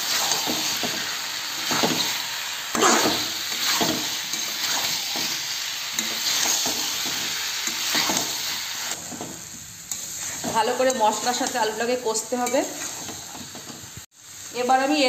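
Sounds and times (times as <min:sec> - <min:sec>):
potatoes sizzling in hot oil: 0:00.0 - 0:15.0
spatula scraping metal pan: 0:03.1 - 0:05.3.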